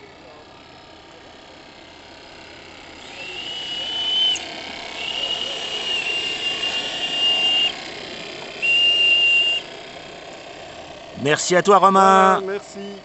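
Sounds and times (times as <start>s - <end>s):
steam whistle blasts: 3.0s - 7.8s, 8.6s - 9.7s.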